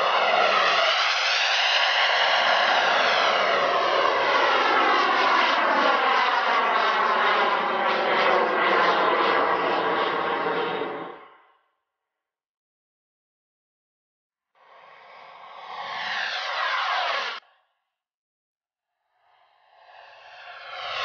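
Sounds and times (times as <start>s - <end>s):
model jet turbine whine: 0.0s - 11.5s, 14.6s - 17.4s, 19.0s - 21.0s.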